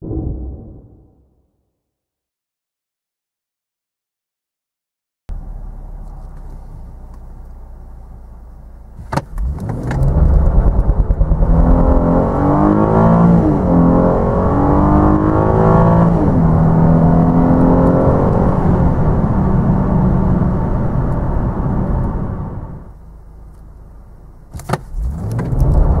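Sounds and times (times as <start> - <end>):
car engine accelerating: 5.3 - 26.0.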